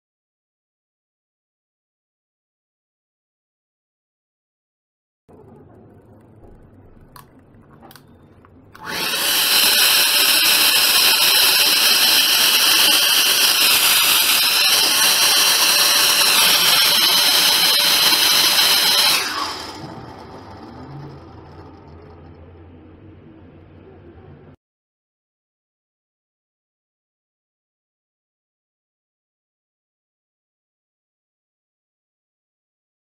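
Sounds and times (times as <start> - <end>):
small motor high whine: 8.8 - 23.2.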